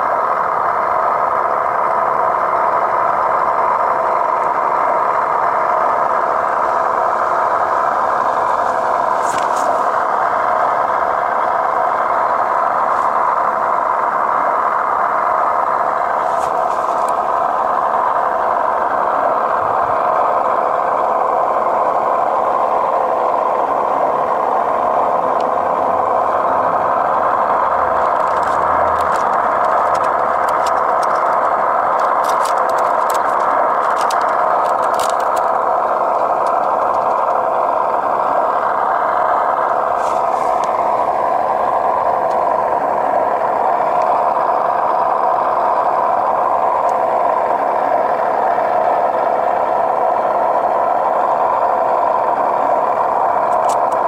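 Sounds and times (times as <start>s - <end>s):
rc car engine-like idle: 0.0s - 54.0s
light clicks and rattles: 28.0s - 37.4s.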